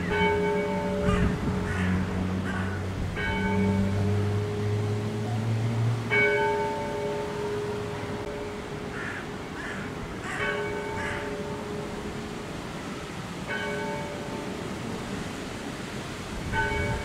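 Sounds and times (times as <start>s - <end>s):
church bell tolling: 0.0s - 15.3s, 16.5s - 17.0s
crow cawing: 1.0s - 2.9s, 8.9s - 11.3s.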